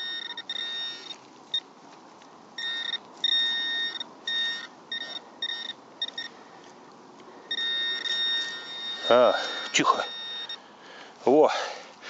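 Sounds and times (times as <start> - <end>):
metal detector probe beeping: 0.0 - 1.7, 2.6 - 6.4, 7.5 - 10.7.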